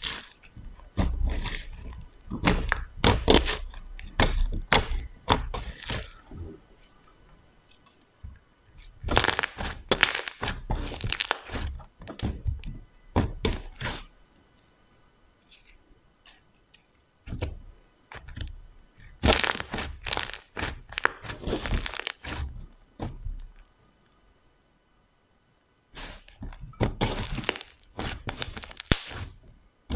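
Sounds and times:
slime popping and squelching: 0:00.0 - 0:06.2, 0:08.8 - 0:12.4, 0:19.0 - 0:22.5, 0:26.0 - 0:29.4.

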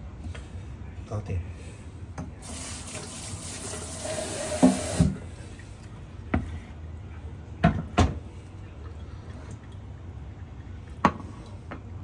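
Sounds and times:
kitchen tap running: 0:02.4 - 0:05.3.

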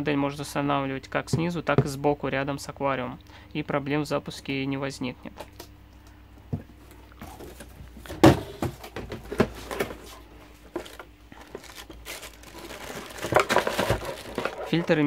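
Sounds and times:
cardboard and plastic bags rustling: 0:06.9 - 0:15.0.

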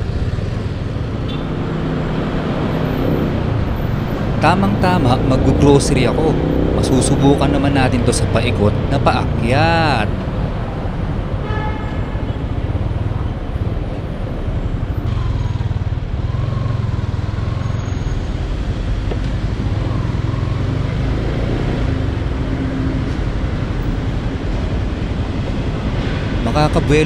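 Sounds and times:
road and traffic noise: 0:00.0 - 0:27.0
motorcycle engine running: 0:14.6 - 0:18.0.

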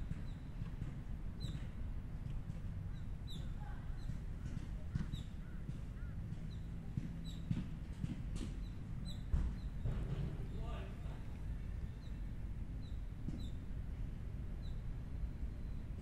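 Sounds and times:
bird chirping: 0:08.4 - 0:10.9
steady low rumble: 0:08.6 - 0:16.0.

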